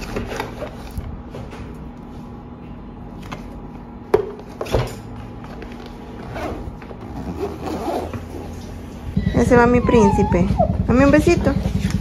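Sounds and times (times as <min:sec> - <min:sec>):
bag rustling: 0:06.1 - 0:08.7
zipper: 0:06.2 - 0:08.7.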